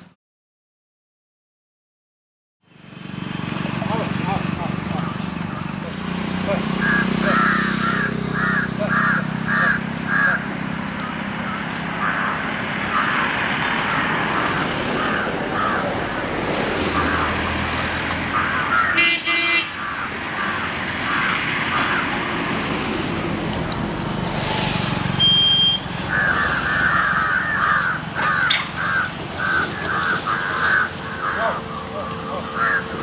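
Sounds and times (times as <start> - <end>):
road traffic passing: 2.6 - 33.0
crows cawing: 4.6 - 22.6, 25.9 - 33.0
vehicle horn: 18.8 - 19.9, 25.2 - 25.9.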